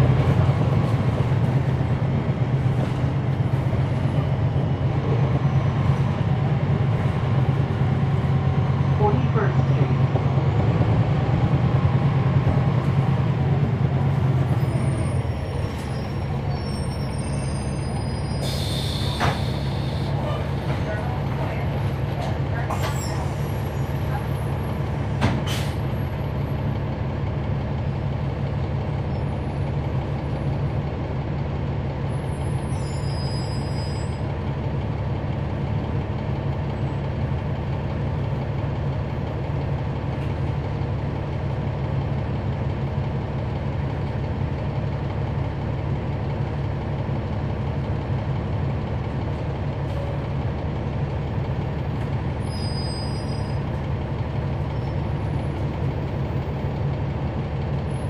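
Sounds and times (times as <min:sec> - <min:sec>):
bus diesel engine running: 0:00.0 - 0:58.0
faint high squeaks: 0:52.4 - 0:53.6.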